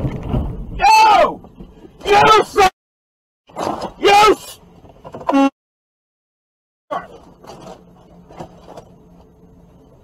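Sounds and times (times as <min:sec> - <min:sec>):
person shouting: 0:00.8 - 0:01.4, 0:02.0 - 0:02.7, 0:04.0 - 0:04.6
truck cab hum: 0:03.5 - 0:05.5, 0:06.9 - 0:10.0.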